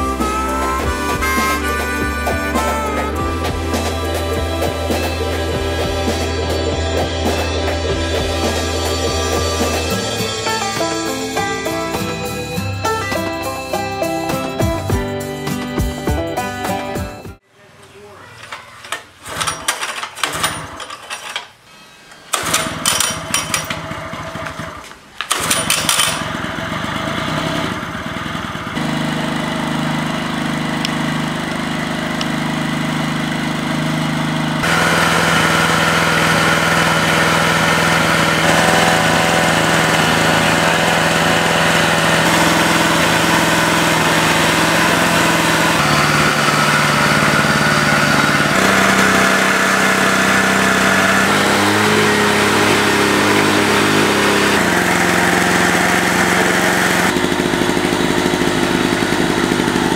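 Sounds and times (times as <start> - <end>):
small generator engine running: 0.0 - 17.4, 19.2 - 21.0, 22.3 - 59.9
recoil starter pulls: 18.4 - 59.9.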